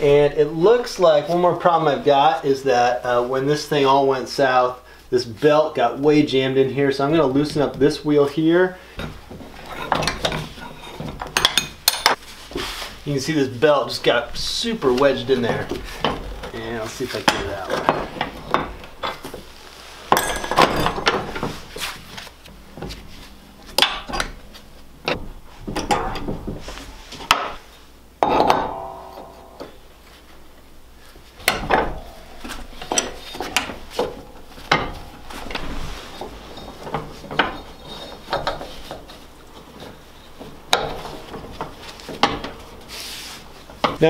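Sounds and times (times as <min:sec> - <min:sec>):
metal clanks and clinks: 0:09.0 - 0:12.2, 0:15.4 - 0:19.4, 0:20.1 - 0:21.6, 0:25.0 - 0:26.6, 0:28.2 - 0:30.5, 0:31.4 - 0:42.6
belt rubbing and scraping: 0:12.0 - 0:13.3, 0:21.2 - 0:27.9, 0:31.0 - 0:43.8.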